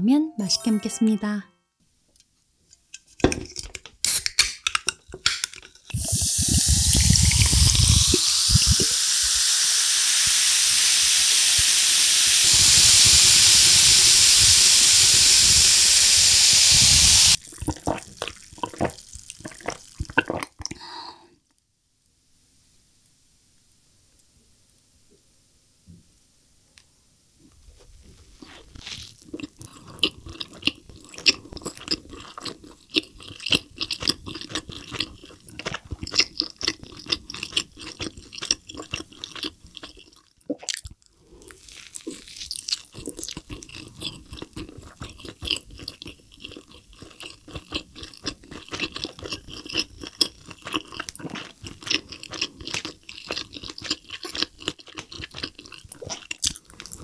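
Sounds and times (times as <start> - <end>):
wet chewing mouth sounds: 5.9 - 9.0, 28.4 - 57.0.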